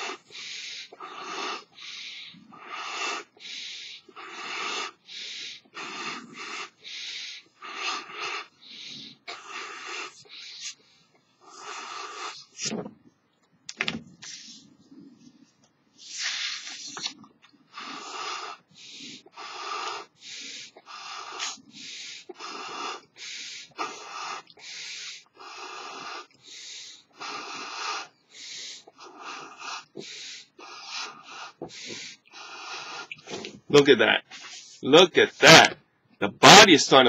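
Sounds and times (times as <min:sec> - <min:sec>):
breathy puffs blowing up balloon: 0:00.0 - 0:12.8, 0:16.0 - 0:35.7.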